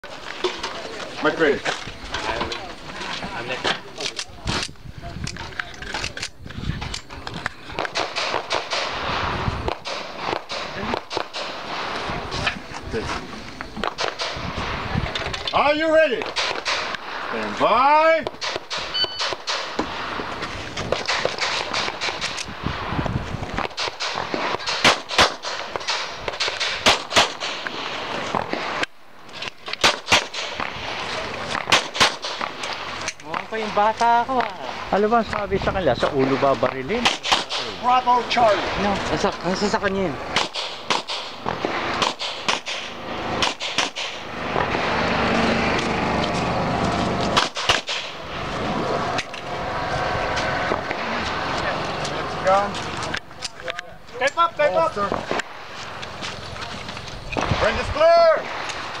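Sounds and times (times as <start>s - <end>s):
pistol shots: 7.7s - 12.4s, 13.8s - 14.9s, 16.1s - 17.3s, 18.2s - 20.2s, 20.9s - 22.5s, 23.6s - 28.8s, 29.6s - 33.5s, 36.6s - 38.7s, 40.2s - 44.8s, 47.3s - 48.3s
fainter gunshot cracks: 23.6s - 27.8s, 29.8s - 30.8s, 31.6s - 32.6s, 40.3s - 44.2s, 47.4s - 48.2s.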